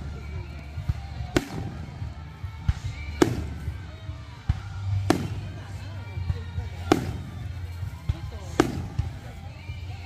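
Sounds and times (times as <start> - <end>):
firework bangs: 0.0 - 9.3
deep firework thuds: 0.0 - 10.0.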